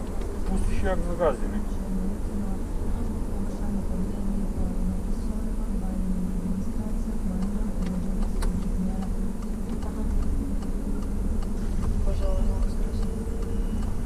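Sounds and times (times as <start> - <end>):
car engine and road rumble: 0.0 - 14.0
low hum: 0.0 - 14.0
faint clicks: 7.4 - 12.0.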